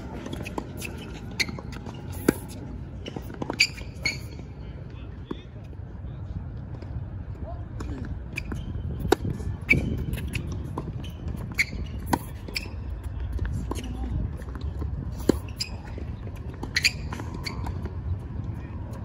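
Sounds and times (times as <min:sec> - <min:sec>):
tennis shoes squeaking on court: 0:00.0 - 0:04.6, 0:08.3 - 0:18.4
racket hitting tennis ball: 0:00.1 - 0:03.8
tennis ball bouncing: 0:00.1 - 0:04.2.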